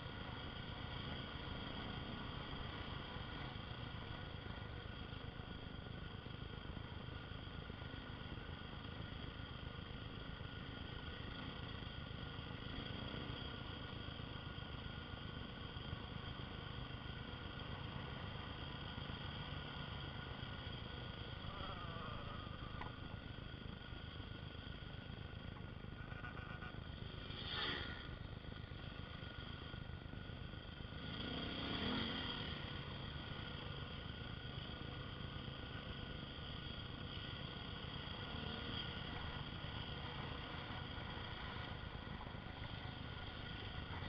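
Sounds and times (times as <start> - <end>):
motorcycle engine cruising: 0.0 - 44.0
road noise: 0.0 - 44.0.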